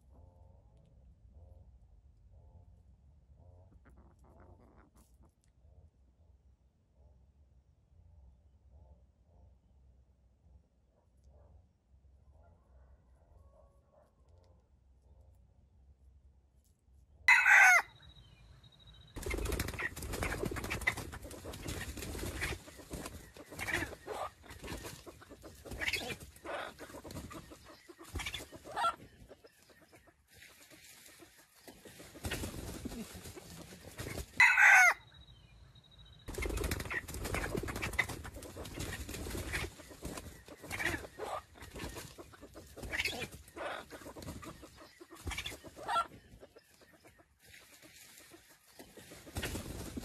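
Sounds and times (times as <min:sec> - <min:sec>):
clucking: 0:03.6 - 0:05.5, 0:19.2 - 0:35.0, 0:36.3 - 0:49.7
rooster crowing: 0:17.3 - 0:17.9, 0:34.4 - 0:35.0.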